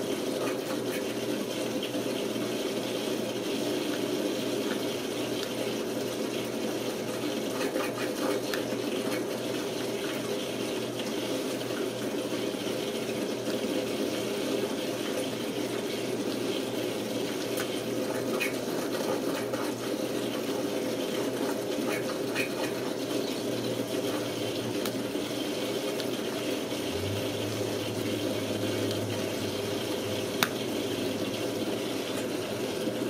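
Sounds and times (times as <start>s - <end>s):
low hum: 26.9s - 31.6s.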